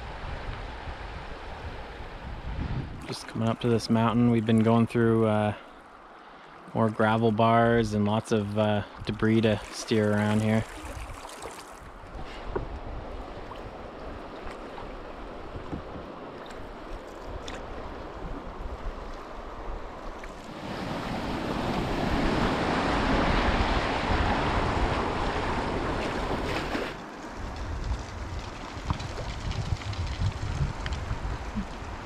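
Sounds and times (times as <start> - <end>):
wind buffeting microphone: 0.0 - 3.2, 27.4 - 32.0
river water rushing: 8.9 - 12.0.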